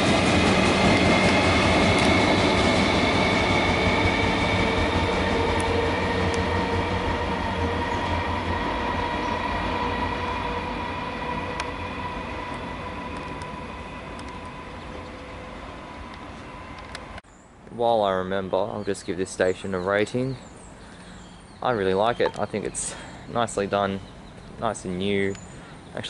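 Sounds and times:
electric train pulling away: 0.0s - 17.2s
train wheels whining on rails: 0.0s - 17.2s.

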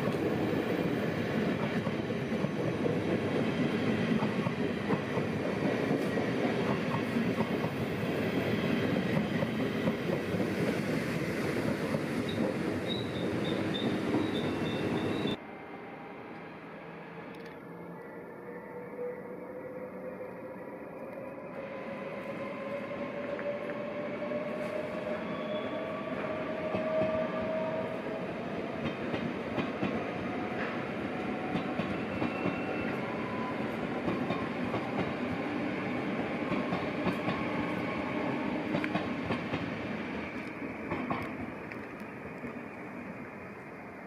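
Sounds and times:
wheels rumbling on rail: 0.0s - 18.6s, 21.1s - 44.0s.

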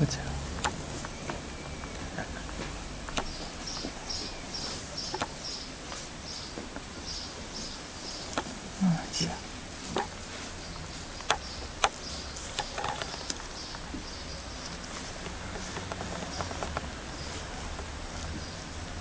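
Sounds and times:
faint steady hum: 0.0s - 19.0s
soft rustling: 0.4s - 19.0s
sharp clicks: 0.5s - 2.0s, 3.1s - 4.0s, 5.0s - 5.5s, 10.8s - 13.8s.

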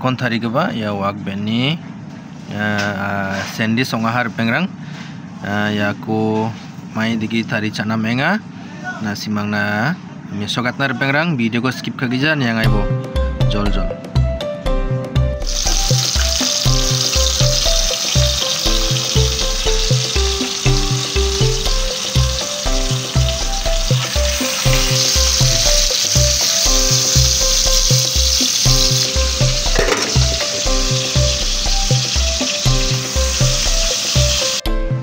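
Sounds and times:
bacon sizzling in a pan: 15.4s - 34.6s.

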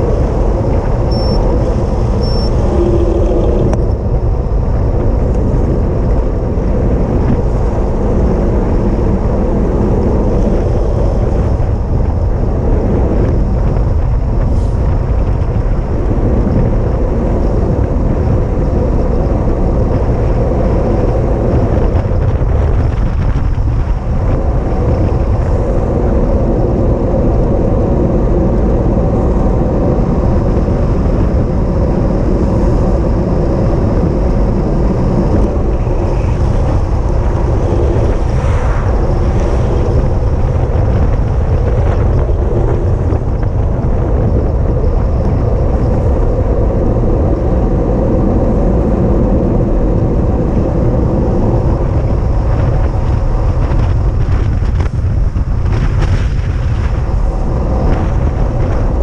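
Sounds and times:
vehicle engine running: 0.0s - 18.4s
wind buffeting microphone: 0.0s - 59.0s.

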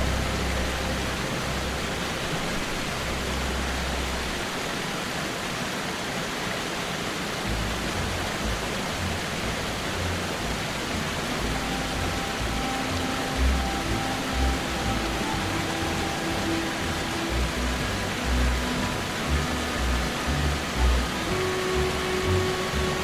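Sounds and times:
low deep music notes: 0.0s - 4.6s, 7.5s - 23.0s
waterfall rushing hiss: 0.0s - 23.0s.

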